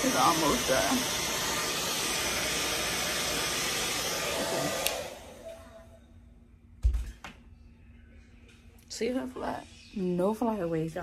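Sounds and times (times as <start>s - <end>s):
hair dryer blowing: 0.0s - 6.0s
hair dryer switch click: 4.4s - 5.2s.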